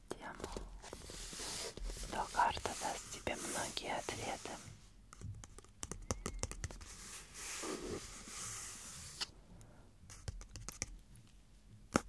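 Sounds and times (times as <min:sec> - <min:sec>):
fingernails scratching book cover: 0:06.8 - 0:09.2.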